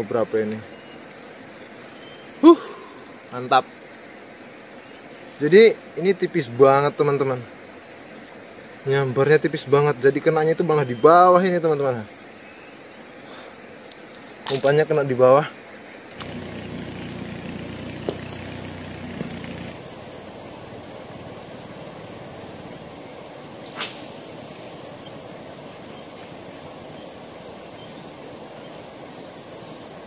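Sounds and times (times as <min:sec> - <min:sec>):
insects trilling: 0:00.0 - 0:30.0
low hum: 0:16.2 - 0:23.4
sharp click: 0:23.6 - 0:24.2.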